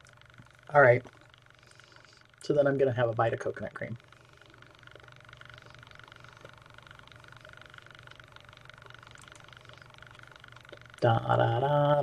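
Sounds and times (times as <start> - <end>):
faint steady hum: 0.0 - 12.0
faint ticks: 4.0 - 11.2.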